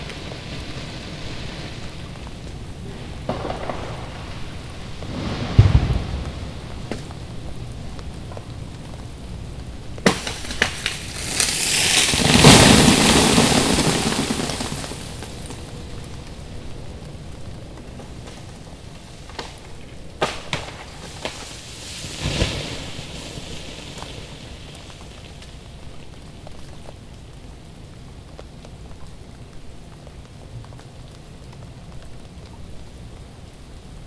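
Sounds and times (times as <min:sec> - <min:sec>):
steady background hiss: 0:00.0 - 0:34.0
icy branches snapping: 0:09.9 - 0:16.4, 0:17.0 - 0:21.6
heavy limb crashing through branches: 0:10.0 - 0:15.6.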